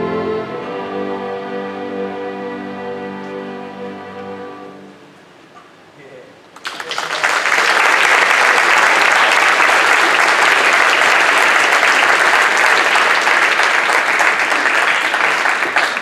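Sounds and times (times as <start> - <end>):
audience applauding: 6.6 - 16.0.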